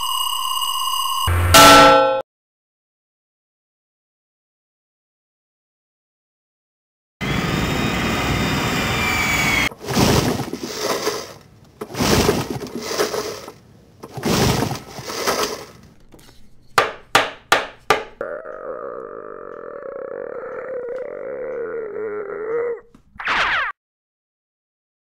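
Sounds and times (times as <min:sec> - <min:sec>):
quick downward swoops: 0:23.2 - 0:23.7.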